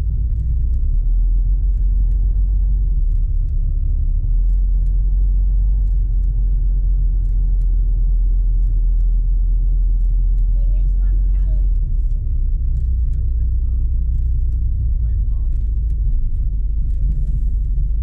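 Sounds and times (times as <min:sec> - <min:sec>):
car engine and tyres rumbling: 0:00.0 - 0:18.0.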